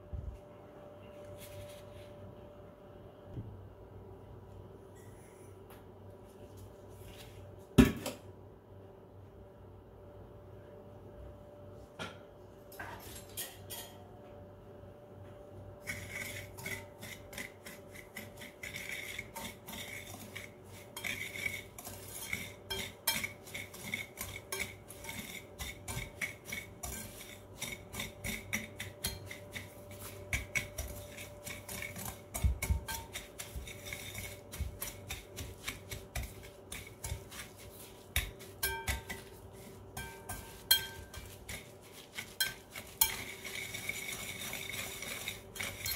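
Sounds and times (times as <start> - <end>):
whisk beating in a glass bowl: 15.8 - 45.9
whisk tapping on glass: 22.2 - 45.9.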